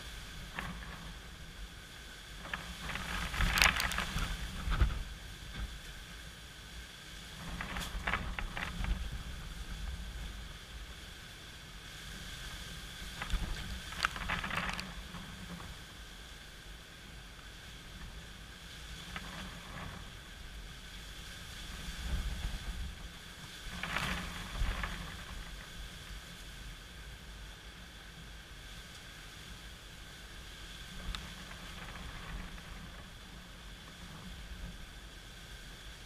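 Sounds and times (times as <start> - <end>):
wind buffeting microphone: 0.0 - 6.2, 11.9 - 16.4, 18.1 - 27.3
wind rushing through palm fronds: 0.0 - 36.0.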